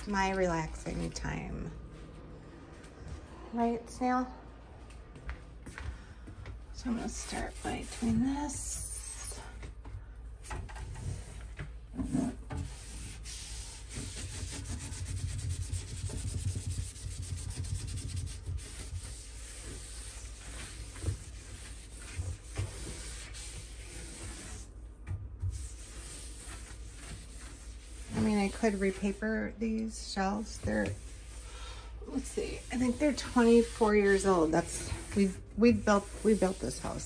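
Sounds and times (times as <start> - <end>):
cloth scrubbing a shelf: 6.8 - 9.7, 11.0 - 24.8, 25.4 - 37.0.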